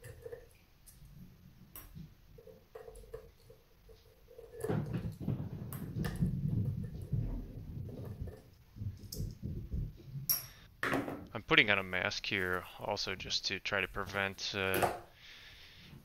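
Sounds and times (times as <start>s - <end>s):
rubbing and rustling handling noise: 11.3s - 16.0s.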